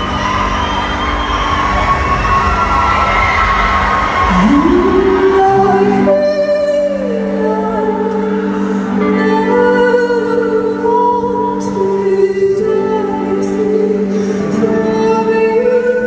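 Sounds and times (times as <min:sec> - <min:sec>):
woman singing long notes: 0:04.3 - 0:16.0.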